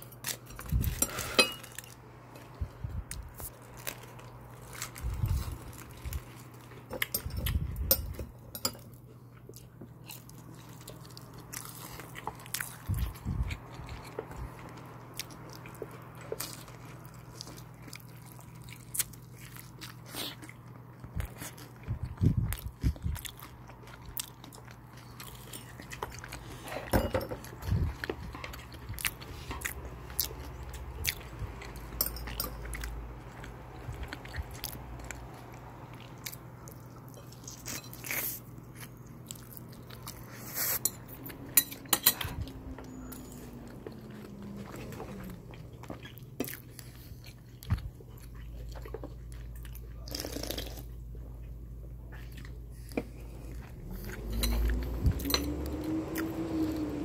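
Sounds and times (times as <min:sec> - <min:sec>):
chewing fried chicken: 0:00.0 - 0:57.0
low hum: 0:51.0 - 0:57.0.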